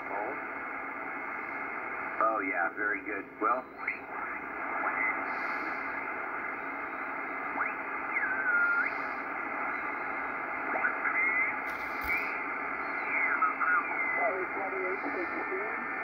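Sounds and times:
radio band hiss: 0.0s - 16.0s
radio signal whistles sliding in pitch: 3.8s - 14.2s.

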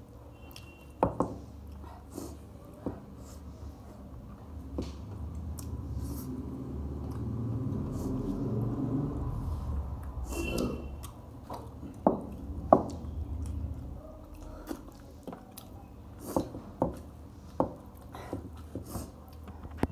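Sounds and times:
person chewing food: 4.2s - 8.8s, 9.4s - 19.8s.

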